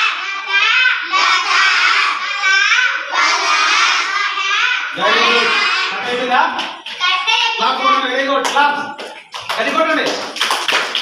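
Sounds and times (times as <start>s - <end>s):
girls singing in unison: 0.0s - 6.2s.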